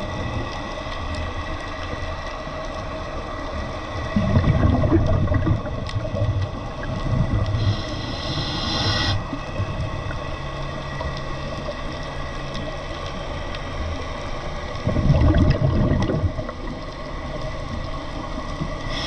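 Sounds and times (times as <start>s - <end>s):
exhaled bubbles gurgling: 0.0s - 2.3s, 3.0s - 10.3s, 14.6s - 19.0s
underwater noise: 0.0s - 19.0s.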